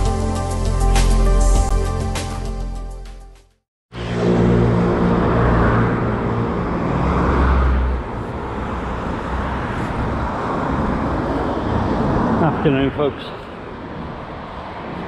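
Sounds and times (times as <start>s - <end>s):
traffic noise: 3.9s - 15.0s
vehicle passing close by: 3.9s - 15.0s.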